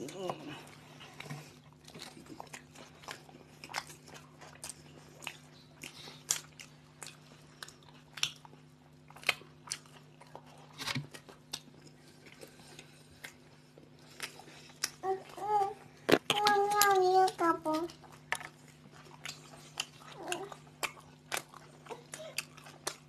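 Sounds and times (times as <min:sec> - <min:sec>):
bread crunching: 0:00.0 - 0:23.0
people chewing sandwiches: 0:00.0 - 0:23.0.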